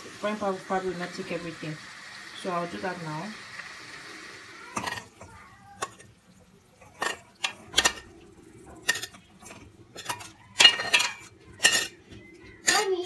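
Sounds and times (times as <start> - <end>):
metal spoon clinking on cookware: 4.8 - 5.2, 6.8 - 8.1, 8.8 - 13.0.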